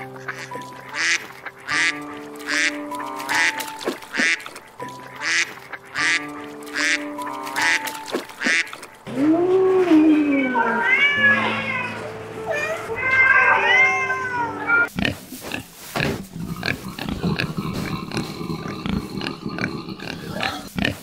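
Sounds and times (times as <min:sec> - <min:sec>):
goose honking: 0:00.0 - 0:09.0.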